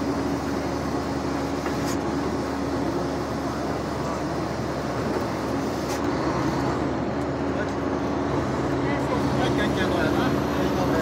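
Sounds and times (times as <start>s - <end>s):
coach engine drone: 0.0s - 11.0s.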